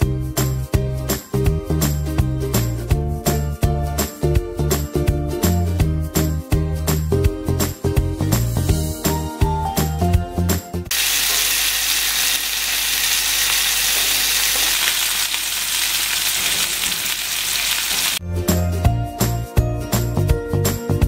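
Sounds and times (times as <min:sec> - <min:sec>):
background music: 0:00.0 - 0:10.9, 0:18.2 - 0:21.0
chicken sizzling in a pan: 0:10.9 - 0:18.2.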